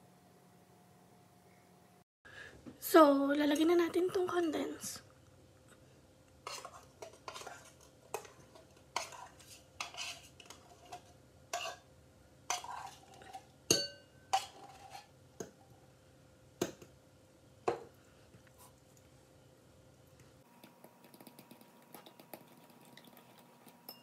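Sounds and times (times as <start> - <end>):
metal spoon scraping tin can: 6.4 - 8.4, 9.0 - 11.8, 14.4 - 15.1
spoon clinking on can and bowl: 12.5 - 14.8.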